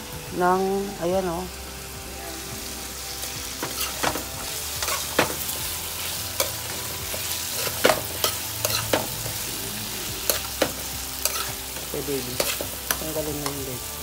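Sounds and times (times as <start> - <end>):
vegetables sizzling in hot oil: 0.0 - 14.0
metal spoon scraping a pan: 3.6 - 5.5, 6.4 - 13.6.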